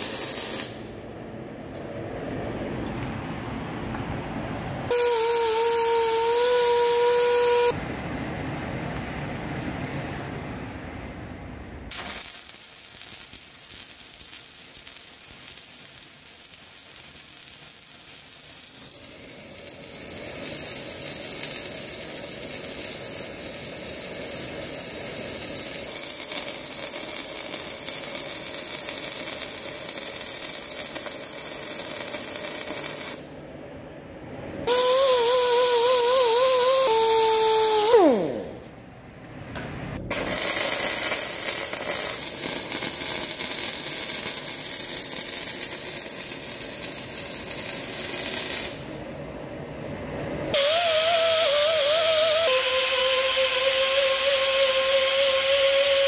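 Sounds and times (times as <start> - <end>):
welding arc hissing and crackling: 0.0 - 1.0, 4.9 - 7.8, 11.9 - 33.4, 34.7 - 38.7, 40.1 - 49.0, 50.5 - 56.0
loud steady whine: 0.0 - 8.8, 48.6 - 56.0.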